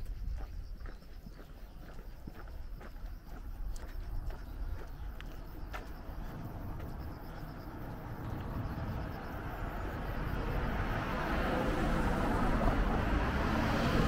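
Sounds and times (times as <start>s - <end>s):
car approaching: 3.8s - 14.0s.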